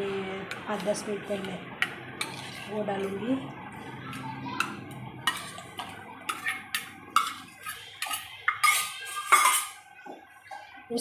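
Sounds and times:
metal bowls clinking: 0.5s - 3.4s, 4.1s - 9.9s.

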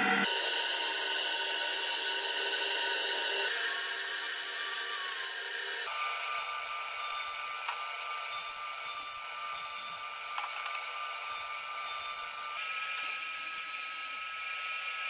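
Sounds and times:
band saw cutting wood: 0.0s - 15.0s
machine whine with high tones: 0.0s - 15.0s.

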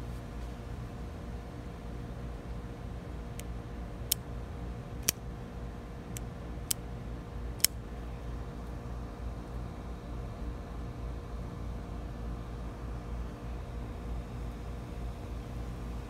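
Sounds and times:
folding knife metallic clicks: 5.0s - 5.2s.

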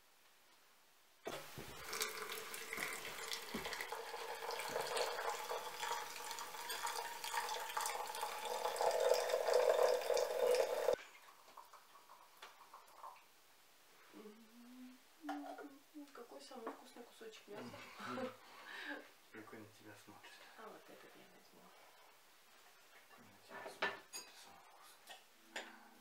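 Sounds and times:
water pouring into teapot: 1.3s - 13.2s.

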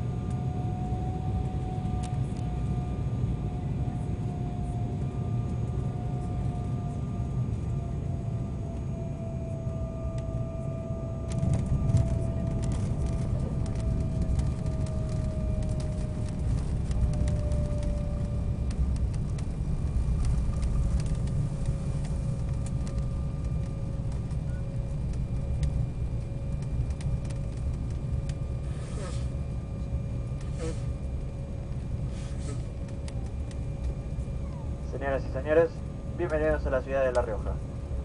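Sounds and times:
jet engines whining: 0.0s - 38.0s
jet touching down: 0.0s - 38.0s
runway rumble with rattling: 0.0s - 38.0s.

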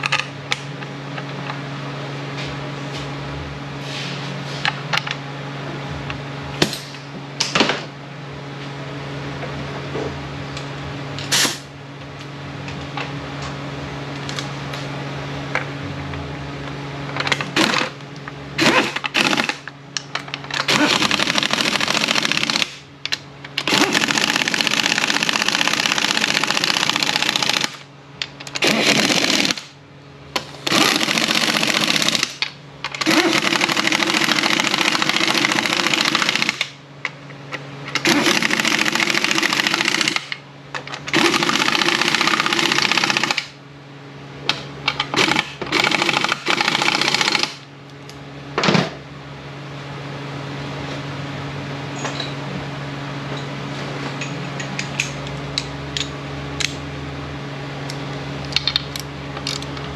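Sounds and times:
low shop hum: 0.0s - 59.9s
air wrench running: 17.3s - 18.0s, 18.6s - 19.7s, 20.5s - 22.8s, 23.6s - 29.7s, 30.6s - 36.8s, 37.9s - 40.4s, 41.1s - 43.6s, 45.1s - 47.7s.

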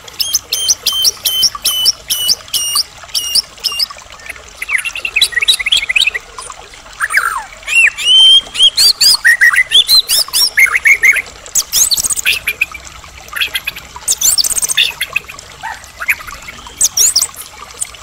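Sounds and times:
songbird whistling and chirping: 0.2s - 6.2s, 7.0s - 12.7s, 16.0s - 17.4s.

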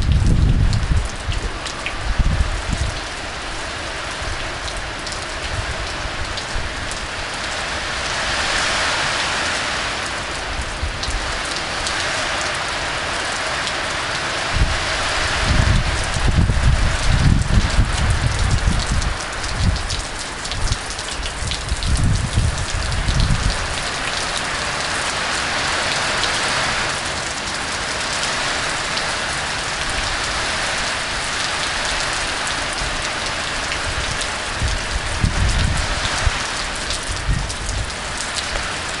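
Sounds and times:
low rumbles: 0.0s - 4.7s
heavy rain pouring: 0.0s - 39.0s.

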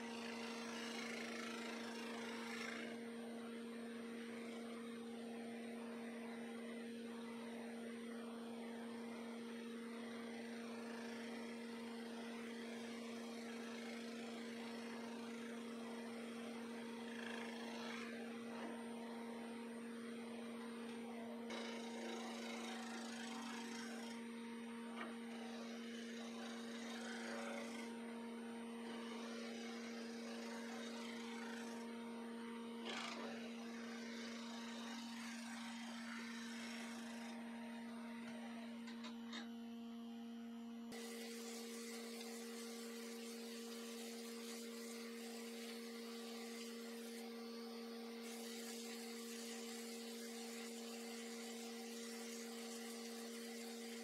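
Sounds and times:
wood lathe humming: 0.0s - 39.5s, 40.8s - 54.0s
gouge scraping spinning resin: 21.5s - 24.2s, 25.0s - 27.9s, 29.0s - 31.9s, 32.9s - 37.4s, 40.9s - 54.0s.

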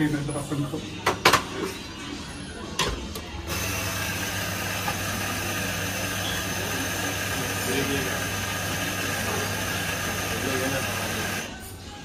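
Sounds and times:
espresso grinder motor grinding: 3.5s - 11.5s.

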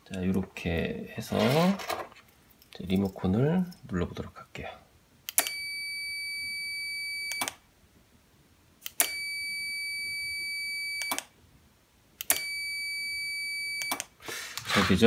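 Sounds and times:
multimeter continuity beep: 5.4s - 7.5s, 9.0s - 11.3s, 12.3s - 14.0s.

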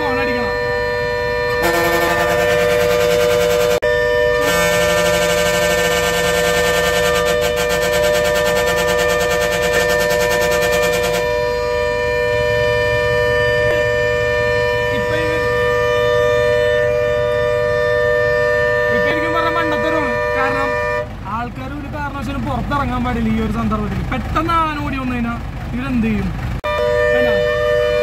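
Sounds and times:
harsh pulsing buzz: 0.0s - 21.0s
bus horns blaring: 0.0s - 24.3s, 26.3s - 28.0s.

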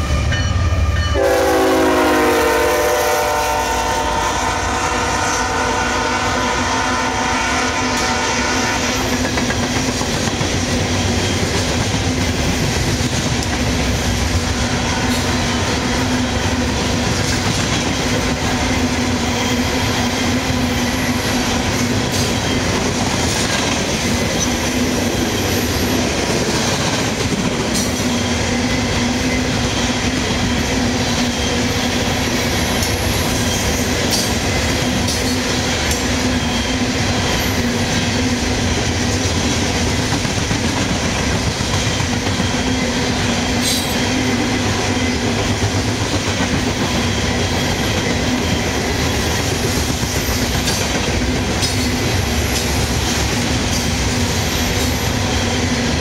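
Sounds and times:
freight train rumbling on rails: 0.0s - 56.0s
locomotive horn: 0.1s - 9.1s.

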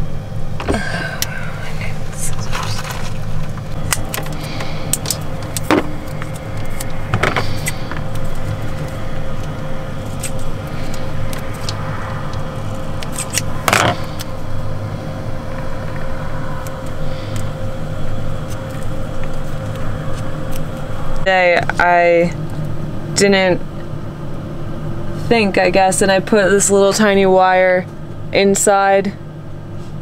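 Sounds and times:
steady low hum: 0.0s - 30.0s
hands handling wire: 2.3s - 14.3s.

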